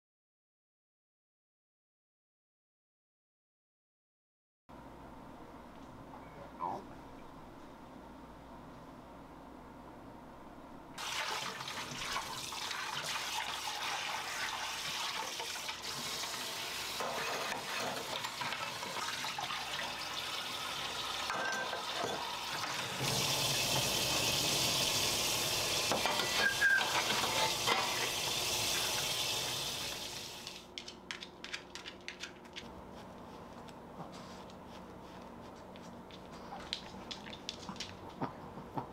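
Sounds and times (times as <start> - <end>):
faucet water running into sink: 11.0 - 30.6.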